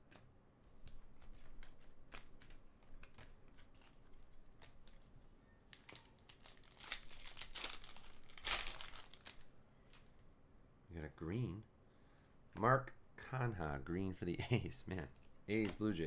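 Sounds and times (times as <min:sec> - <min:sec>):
cards being handled: 0:00.0 - 0:05.1, 0:15.5 - 0:16.0
foil wrapper tearing and crinkling: 0:05.8 - 0:09.4.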